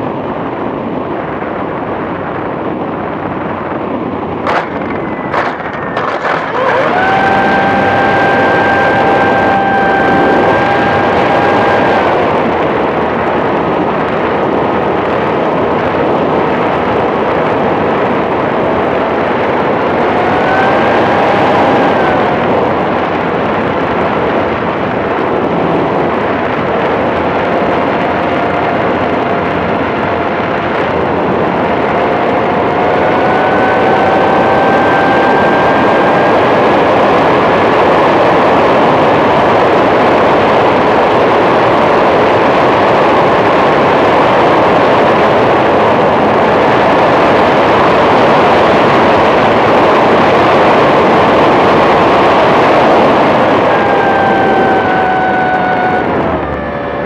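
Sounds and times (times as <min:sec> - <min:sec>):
rushing wind noise: 0:00.0 - 0:57.0
model airplane motor whine: 0:06.2 - 0:12.7, 0:19.6 - 0:23.0, 0:26.7 - 0:38.3, 0:51.0 - 0:57.0.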